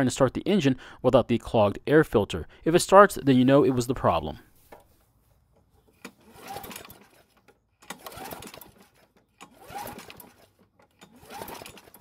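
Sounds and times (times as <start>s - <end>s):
mower engine pull-start cranking: 5.8s - 12.0s.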